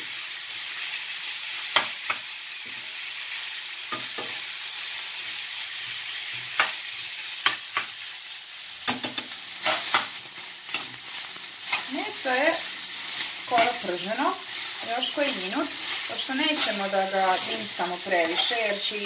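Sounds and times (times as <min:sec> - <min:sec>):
meat sizzling in a frying pan: 0:00.0 - 0:19.0
metal spoon scraping a pan: 0:08.9 - 0:19.0.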